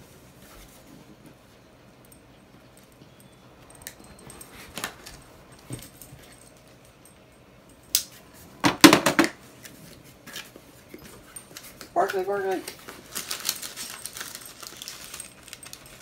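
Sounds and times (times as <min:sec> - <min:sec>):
cardboard package rustling: 0:09.6 - 0:16.0.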